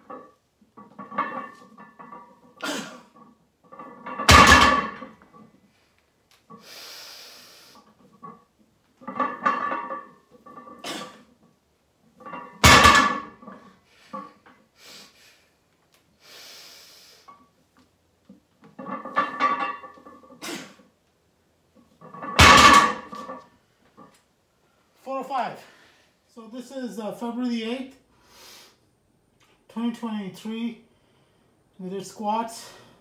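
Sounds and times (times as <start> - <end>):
barbell plates thudding on floor: 4.0 - 5.2, 12.6 - 13.4, 22.2 - 23.3.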